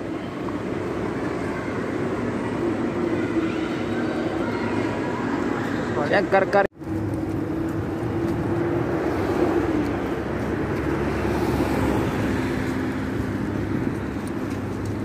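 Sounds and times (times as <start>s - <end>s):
boat engines droning: 0.0s - 15.0s
lower engine hum: 6.8s - 15.0s.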